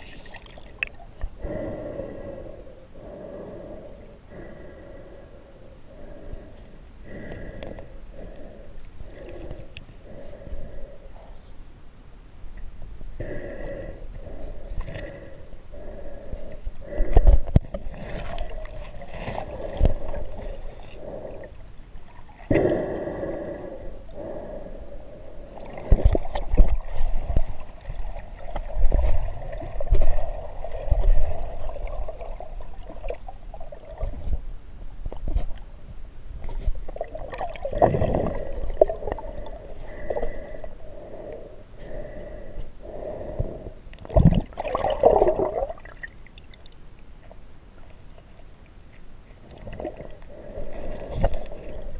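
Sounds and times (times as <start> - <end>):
muffled underwater water rushing: 12.6 - 24.4, 25.4 - 51.9.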